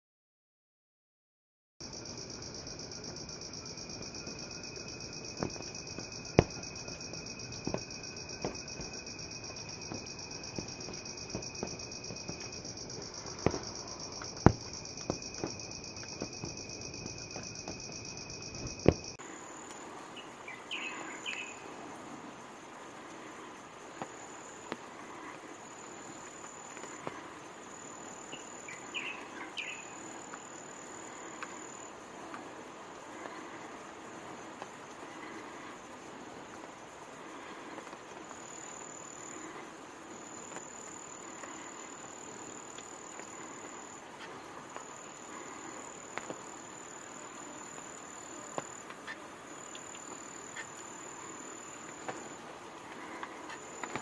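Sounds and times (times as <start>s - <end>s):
insect chorus drone: 1.8s - 54.0s
insect trill: 1.8s - 54.0s
bird chirps: 20.2s - 21.6s, 28.3s - 30.0s.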